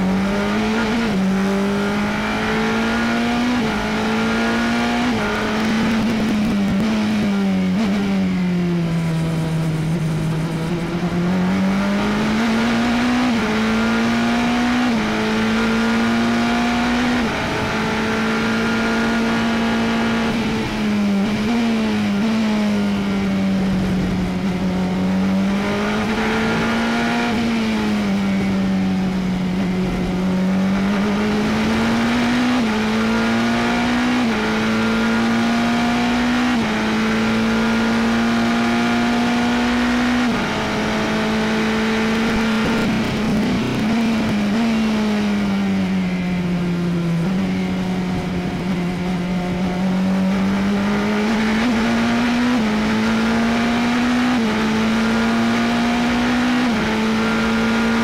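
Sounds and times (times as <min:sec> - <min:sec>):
race car engine revving: 0:00.0 - 0:58.0.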